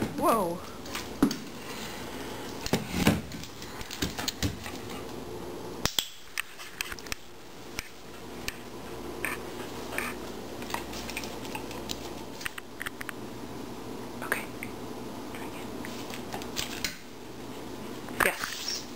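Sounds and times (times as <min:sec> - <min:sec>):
dog claws clicking on floor: 0:02.6 - 0:05.0, 0:09.2 - 0:13.1.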